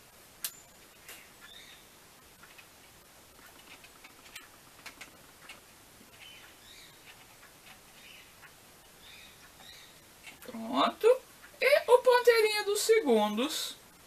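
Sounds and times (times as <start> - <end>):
faint bird chirps: 1.1 - 2.0, 6.1 - 7.2, 7.9 - 10.1.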